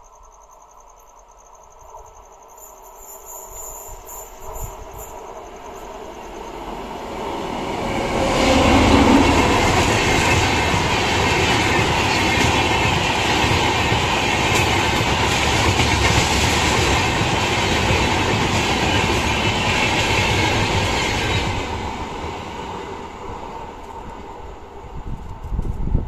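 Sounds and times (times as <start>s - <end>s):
train wheels on rails: 3.2s - 26.0s.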